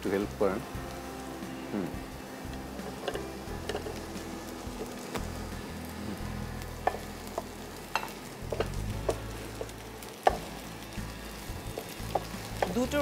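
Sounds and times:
chicken sizzling in oil: 0.0s - 13.0s
spatula knocking and scraping pan: 6.8s - 10.6s, 11.7s - 12.8s.

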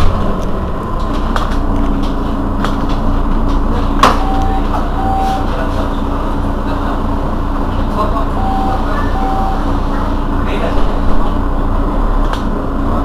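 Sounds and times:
bus engine idling: 0.0s - 13.0s
short high beeps: 4.2s - 5.5s, 8.3s - 9.8s.

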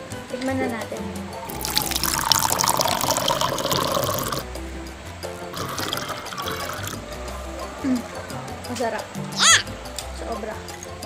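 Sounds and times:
drink slurped through a straw: 1.5s - 4.4s, 5.6s - 7.0s.

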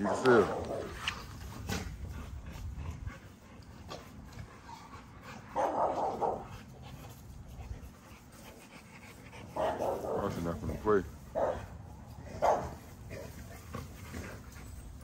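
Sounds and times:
dog barking: 0.0s - 0.8s, 5.6s - 6.5s, 9.6s - 10.3s, 11.4s - 11.7s, 12.4s - 12.8s.

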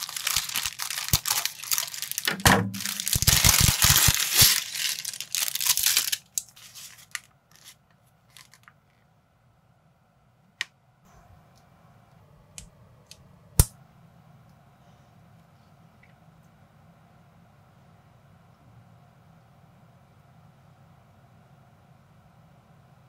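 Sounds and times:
plastic bag crinkling: 0.0s - 8.7s.

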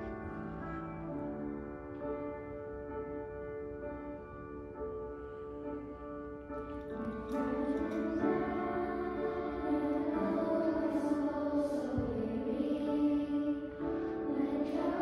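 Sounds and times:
instrumental held chords: 0.0s - 15.0s
children's choir singing: 6.8s - 15.0s.

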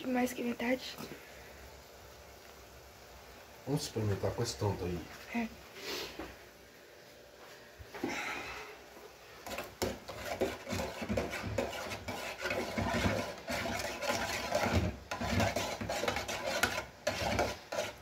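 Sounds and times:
spoon scraping a metal saucepan: 9.4s - 18.0s.

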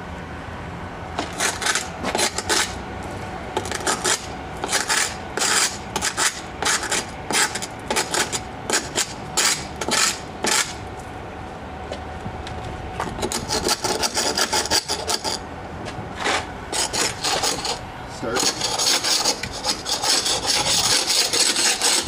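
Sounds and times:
scraper scraping hull: 16.2s - 22.0s.

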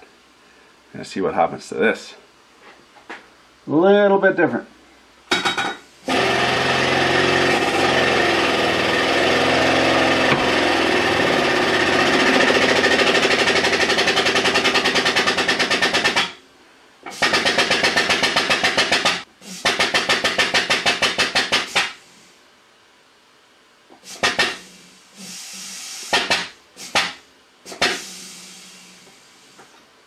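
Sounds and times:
hydraulic pump pulsing: 6.1s - 16.2s.

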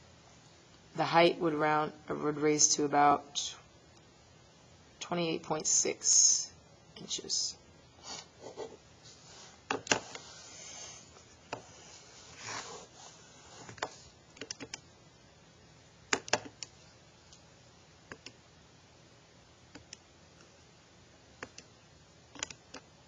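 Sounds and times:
soft rubbing: 8.1s - 14.2s.

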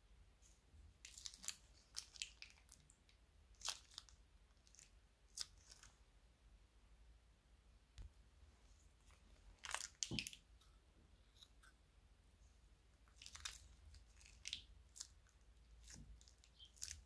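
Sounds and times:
plastic pouch crinkling: 13.2s - 15.1s.

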